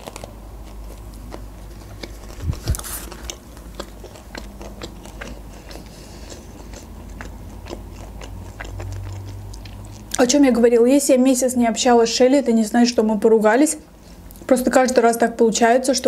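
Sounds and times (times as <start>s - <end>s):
person chewing food: 0.0s - 10.2s
wet mouth clicks: 1.3s - 10.2s.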